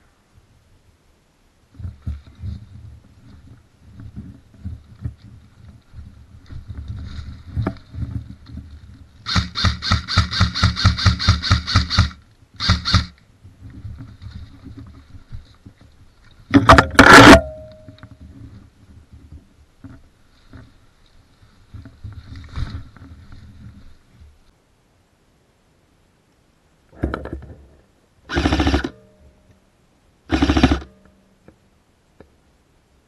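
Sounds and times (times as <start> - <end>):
airsoft rifle firing full auto: 9.3 - 13.1, 16.8 - 17.6, 28.3 - 29.0, 30.3 - 31.0.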